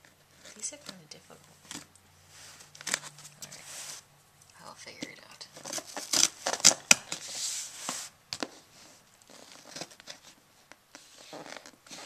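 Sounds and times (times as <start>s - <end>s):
scissors scraping packing tape: 5.6s - 7.3s.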